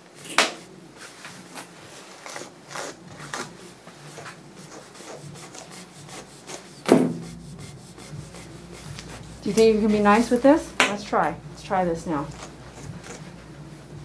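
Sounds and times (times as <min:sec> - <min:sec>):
brush scratching through dog fur: 0:04.1 - 0:10.5.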